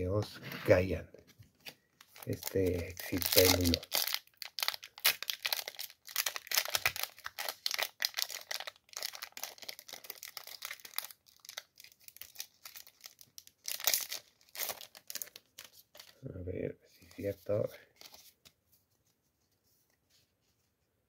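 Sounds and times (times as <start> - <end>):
foil wrapper crinkling and tearing: 2.0 - 16.2.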